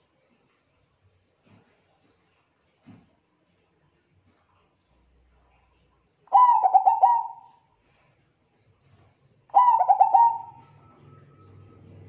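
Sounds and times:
dove cooing: 6.3s - 7.6s, 9.5s - 11.6s.

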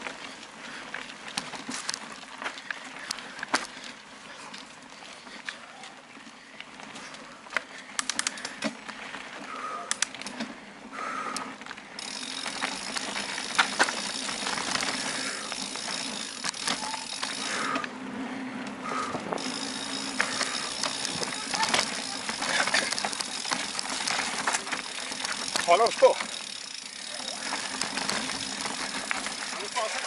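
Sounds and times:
bicycle rattling over dirt trail: 0.0s - 30.0s
steady mechanical ticking: 19.4s - 30.0s.

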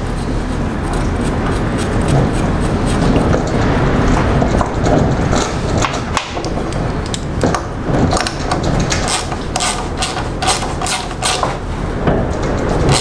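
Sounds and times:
hand ratchet clicking: 8.2s - 11.6s.

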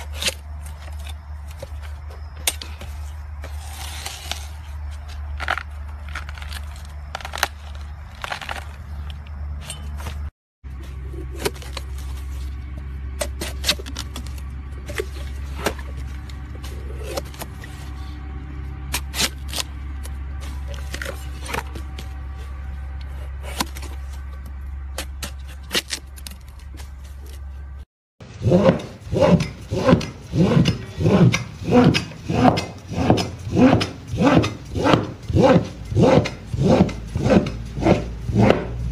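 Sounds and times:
knife splitting bamboo cracks: 0.0s - 1.8s, 2.4s - 10.2s, 11.2s - 12.1s, 13.2s - 17.7s, 18.9s - 22.1s, 23.4s - 27.4s
steady low hum: 0.0s - 38.9s
cleaver rasping across wood: 28.4s - 38.8s.

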